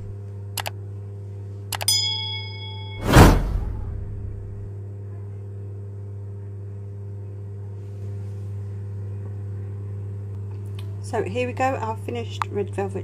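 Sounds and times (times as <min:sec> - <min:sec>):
low electrical hum: 0:00.0 - 0:13.0
whoosh sound effect: 0:03.0 - 0:04.6.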